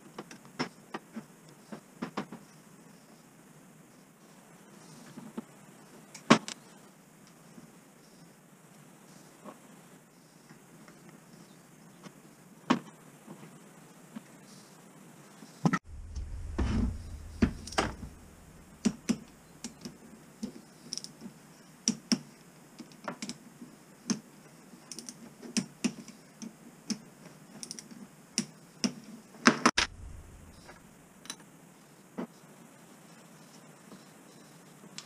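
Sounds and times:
low bump: 0:15.8 - 0:19.7, 0:29.8 - 0:31.1.

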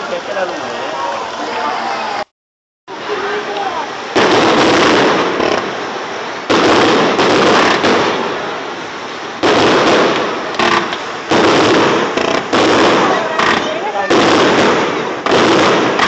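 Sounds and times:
crackling firework tails: 0:03.0 - 0:16.0
firework shells bursting: 0:04.2 - 0:08.6, 0:09.4 - 0:16.0.

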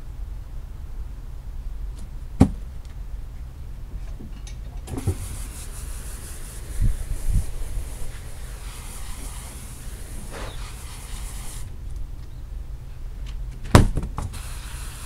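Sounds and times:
low background rumble: 0:00.0 - 0:15.0
rug thumping onto wooden deck: 0:02.4 - 0:02.6, 0:13.6 - 0:14.4
steady high hiss: 0:04.6 - 0:13.1, 0:14.2 - 0:15.0.

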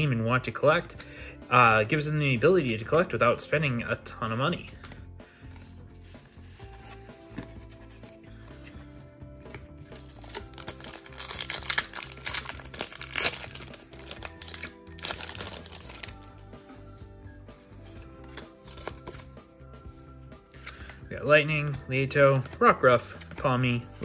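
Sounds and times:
background music: 0:00.0 - 0:24.0
foil pack crinkling and tearing: 0:10.0 - 0:16.3.

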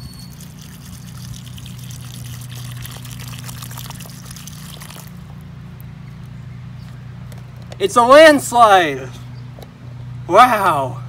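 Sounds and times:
steady low hum: 0:00.0 - 0:11.0
water pouring onto dirt: 0:00.2 - 0:05.4.

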